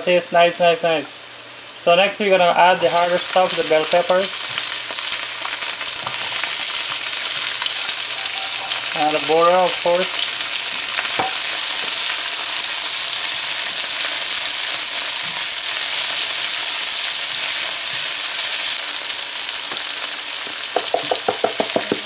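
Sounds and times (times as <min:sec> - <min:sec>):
vegetables sizzling in oil: 0:00.1 - 0:22.0
spatula stirring in a pan: 0:04.4 - 0:09.0.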